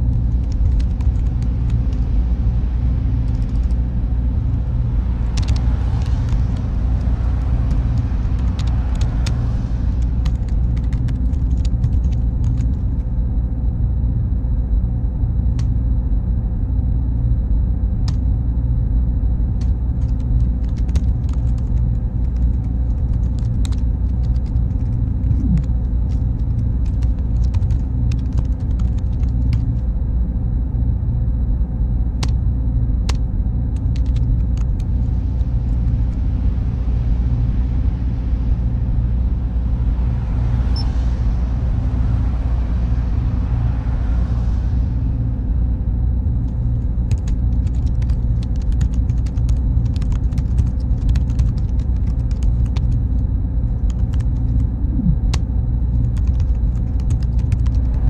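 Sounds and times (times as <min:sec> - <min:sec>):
computer servers droning: 0:00.0 - 0:58.0
high electronic whine: 0:25.0 - 0:26.9, 0:34.8 - 0:47.7, 0:53.0 - 0:58.0
keyboard keystrokes: 0:47.1 - 0:52.9.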